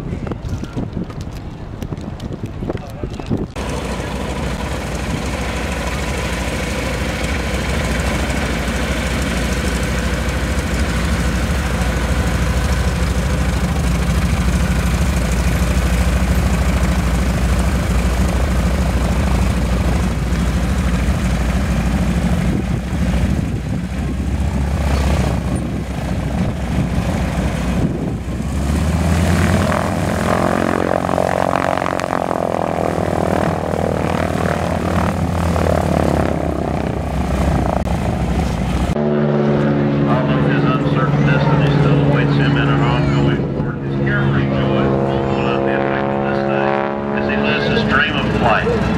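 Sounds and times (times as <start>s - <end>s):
radial aircraft engine running: 0.0s - 48.9s.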